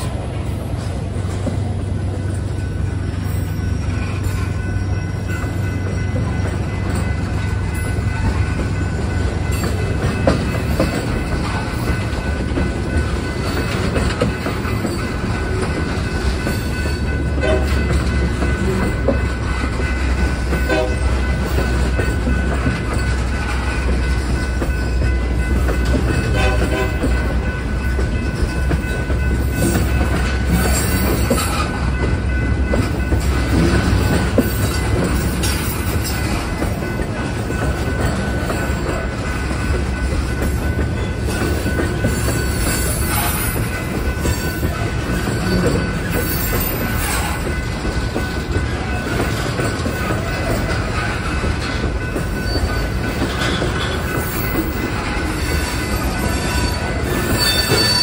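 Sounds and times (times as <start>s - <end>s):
train wheels rumbling on rail: 0.0s - 58.0s
wheels clicking over rail joints: 0.6s - 58.0s
high wheel squeal: 42.1s - 47.5s, 52.3s - 58.0s.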